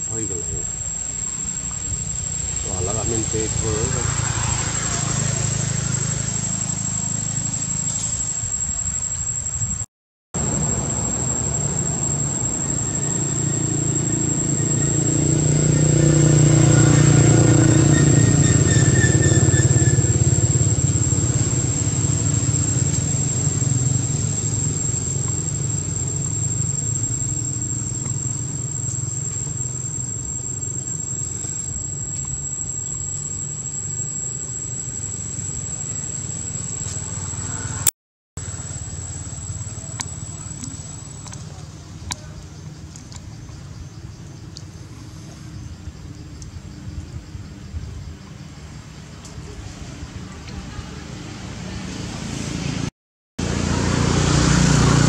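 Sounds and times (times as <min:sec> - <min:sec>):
high-pitched whine: 0:00.0 - 0:09.8, 0:10.4 - 0:37.8
low engine rumble: 0:00.0 - 0:09.8, 0:10.4 - 0:52.7.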